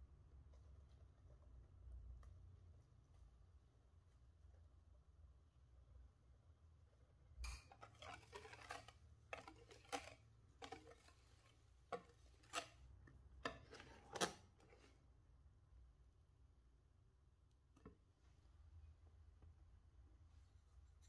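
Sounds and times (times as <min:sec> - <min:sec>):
whisk scraping glass bowl: 0:07.4 - 0:15.0.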